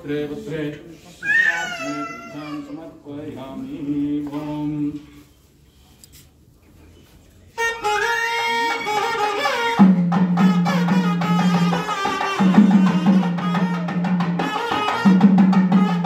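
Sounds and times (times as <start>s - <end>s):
reed pipe melody: 7.5s - 16.0s
drum strokes: 8.9s - 16.0s.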